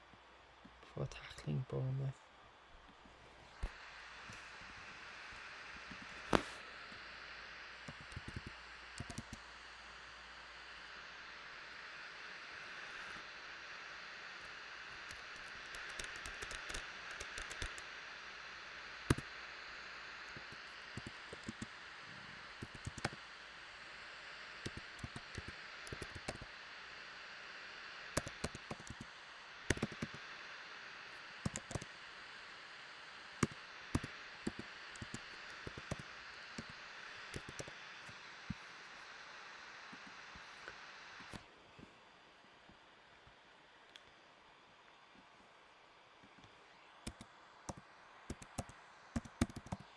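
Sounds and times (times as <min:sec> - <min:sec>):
steady hiss: 0:00.0 - 0:49.9
keyboard key clicks: 0:07.9 - 0:09.4, 0:15.4 - 0:17.8, 0:29.7 - 0:30.2.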